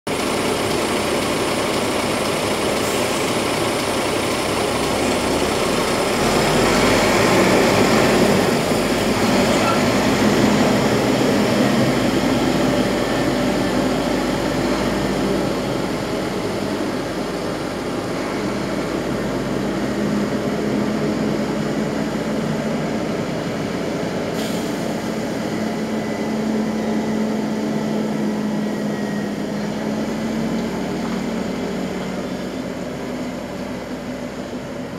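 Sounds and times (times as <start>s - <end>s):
truck diesel engine running: 0.1s - 34.9s.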